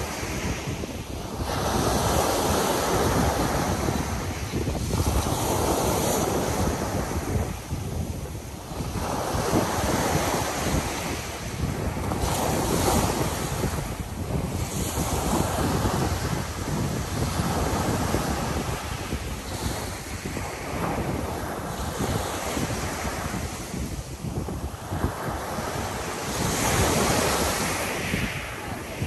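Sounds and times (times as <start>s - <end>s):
waves washing on pebble beach: 0.0s - 29.0s
wind buffeting microphone: 0.0s - 29.0s.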